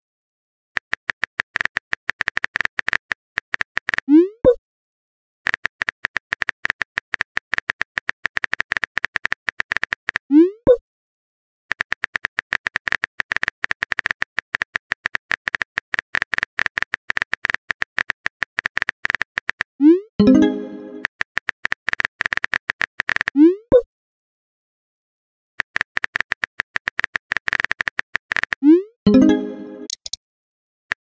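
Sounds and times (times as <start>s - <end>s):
keyboard tapping clicks: 25.7s - 30.2s.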